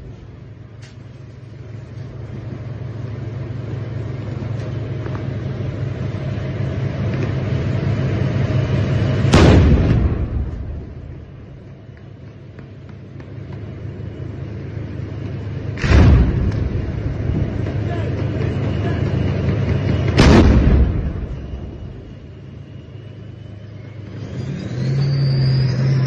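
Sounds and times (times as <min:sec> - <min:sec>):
tank engine rumbling: 0:00.0 - 0:26.0
tank gun shot: 0:09.3 - 0:11.2, 0:15.8 - 0:17.6, 0:20.0 - 0:22.0.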